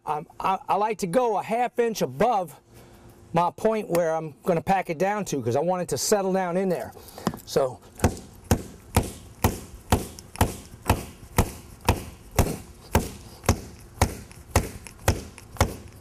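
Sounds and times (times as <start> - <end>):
rubber mallet striking paver: 8.0 - 16.0.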